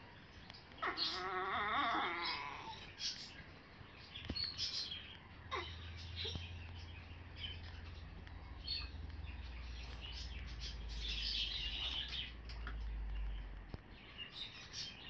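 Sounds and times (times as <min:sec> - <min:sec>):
low steady hum: 0:00.0 - 0:15.0
dog whining: 0:00.8 - 0:02.9.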